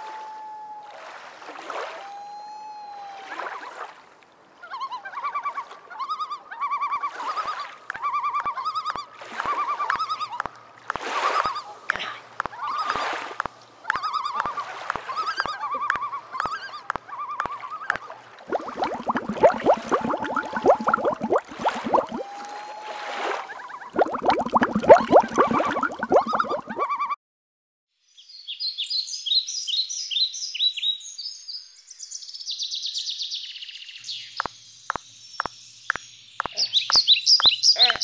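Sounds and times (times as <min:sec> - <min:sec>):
water splashes: 0:00.8 - 0:02.2, 0:03.0 - 0:26.9
flamingos honking: 0:13.8 - 0:27.0
rapid bubbling: 0:18.4 - 0:22.5, 0:23.8 - 0:26.9.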